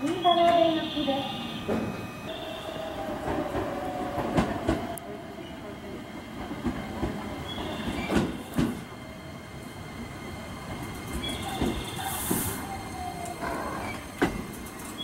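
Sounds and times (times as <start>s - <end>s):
train wheels knocking over rail joints: 11.0s - 12.5s
hiss of air: 12.0s - 12.7s.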